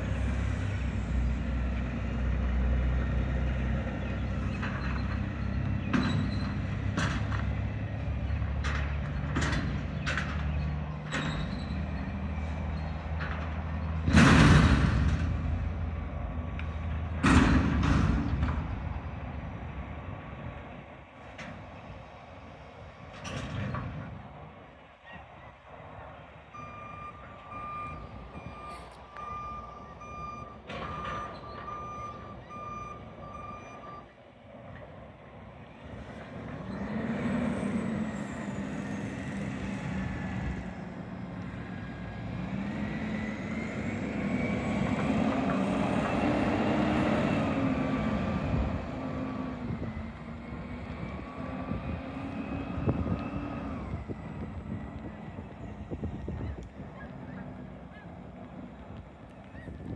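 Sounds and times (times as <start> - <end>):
truck engine revving: 0.0 - 20.0, 34.6 - 59.9
reversing alarm beeping: 26.5 - 34.1.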